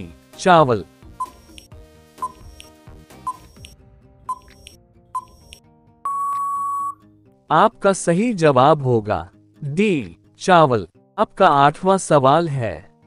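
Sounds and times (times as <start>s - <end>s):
soft background music: 0.0s - 13.0s
short timer beeps: 1.2s - 2.7s, 3.3s - 7.0s
long steady beep: 3.3s - 7.0s.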